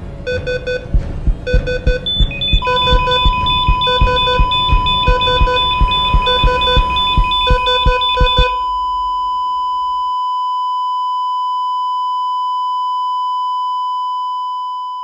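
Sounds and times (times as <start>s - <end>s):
music with drum beat: 0.3s - 8.6s
high electronic bleep tone: 0.3s - 10.8s.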